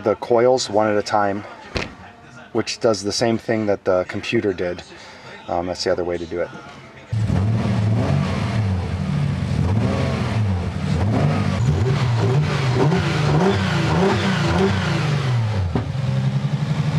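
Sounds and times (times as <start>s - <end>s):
car engine revving: 7.1s - 16.9s.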